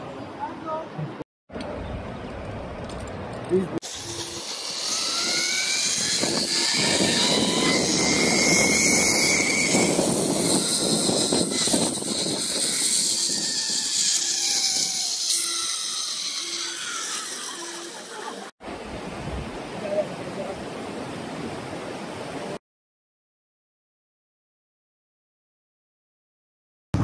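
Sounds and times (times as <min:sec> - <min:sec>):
zipline pulleys whirring on cable: 0:03.8 - 0:18.5.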